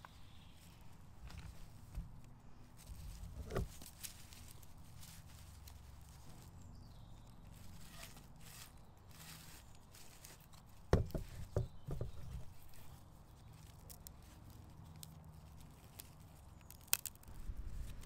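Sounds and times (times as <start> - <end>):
wooden knocks and rustles: 1.2 - 4.1, 10.8 - 12.9.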